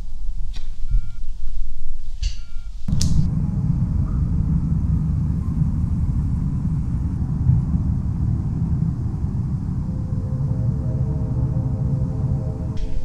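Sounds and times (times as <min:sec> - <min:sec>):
playing cards flicking: 0:02.9 - 0:03.3
loud low rumble: 0:02.9 - 0:13.0
low hum: 0:02.9 - 0:13.0.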